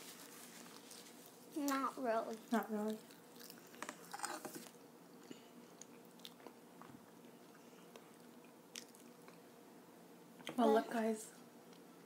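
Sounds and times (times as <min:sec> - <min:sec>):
soft chewing and mouth sounds: 0:00.0 - 0:09.6.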